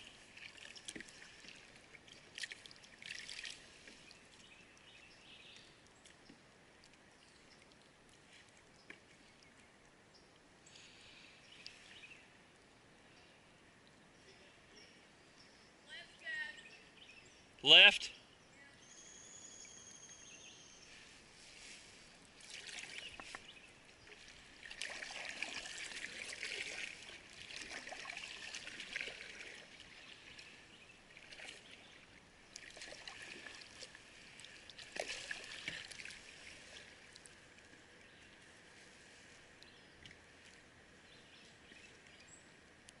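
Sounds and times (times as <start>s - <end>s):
paddle splashing water: 0.0s - 9.8s, 20.9s - 42.3s.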